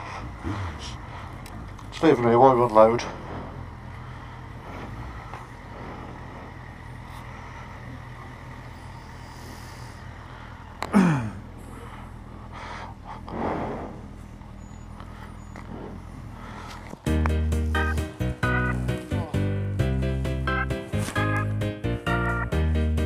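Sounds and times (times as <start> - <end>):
motorcycle engine idling: 0.0 - 23.0.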